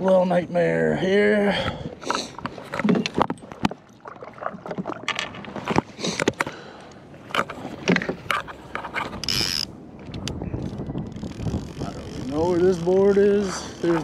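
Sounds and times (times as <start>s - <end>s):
knocks and clicks of handling gear: 5.0s - 9.4s.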